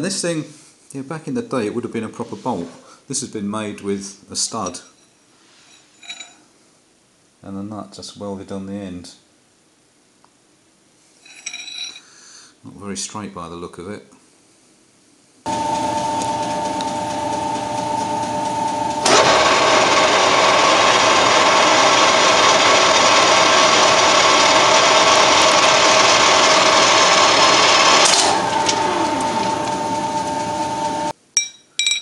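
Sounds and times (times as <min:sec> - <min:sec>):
lathe running whine: 0:15.5 - 0:31.1.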